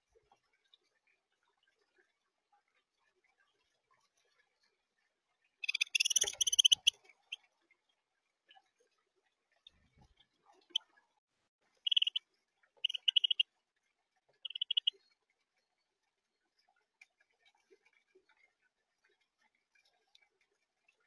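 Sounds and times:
finches chirping: 5.6s - 6.9s, 11.9s - 12.2s, 12.8s - 13.4s, 14.4s - 14.9s.

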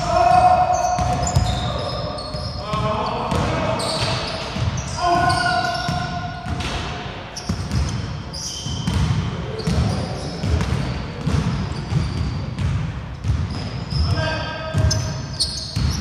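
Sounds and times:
shoe squeaks: 0.6s - 6.2s, 7.3s - 12.6s, 13.5s - 16.0s
basketball bouncing on wooden floor: 8.8s - 13.8s, 15.8s - 16.0s.

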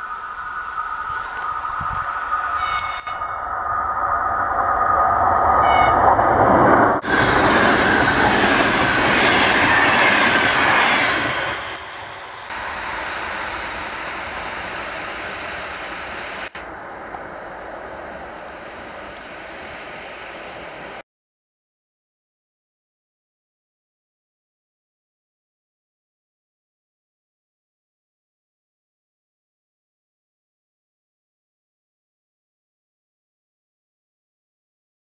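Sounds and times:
train wheels rumbling on rails: 0.0s - 21.0s
clickety-clack over rail joints: 5.6s - 21.0s.

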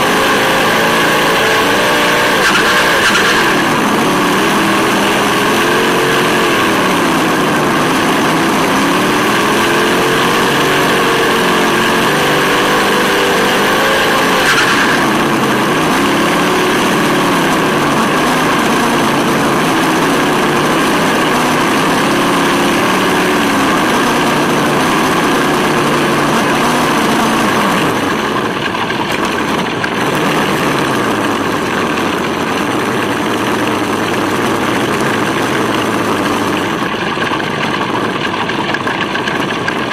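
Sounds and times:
simulated engine revving from speaker: 0.0s - 28.2s, 30.0s - 31.6s.

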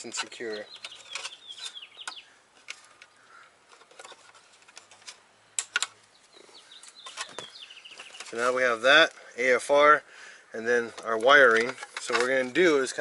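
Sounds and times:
small birds chirping: 0.0s - 4.5s, 5.4s - 9.5s.

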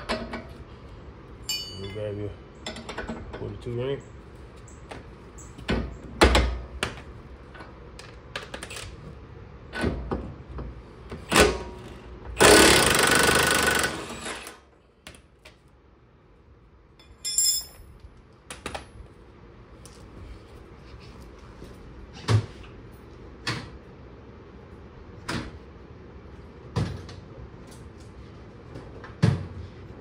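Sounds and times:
metallic clatter of tools: 1.5s - 2.1s, 17.0s - 17.9s.

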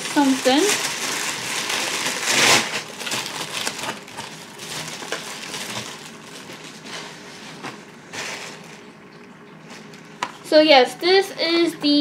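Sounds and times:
paper crinkling and rustling: 0.0s - 8.9s.

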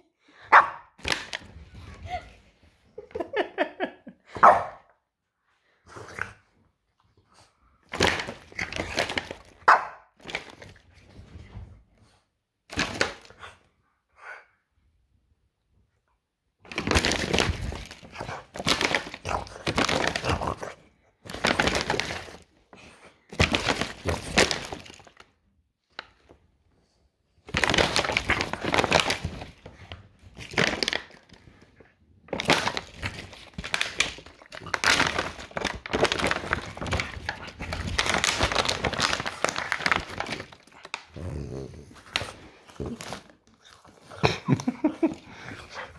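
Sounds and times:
dog chewing plastic bottle: 7.9s - 10.8s, 16.7s - 22.5s, 27.5s - 31.4s, 32.2s - 44.1s.

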